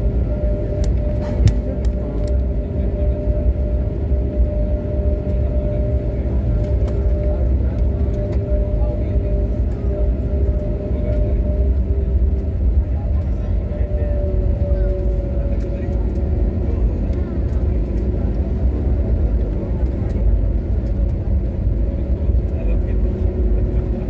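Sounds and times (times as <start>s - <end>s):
engine and cabin hums: 0.0s - 24.0s
low cabin rumble: 0.0s - 24.0s.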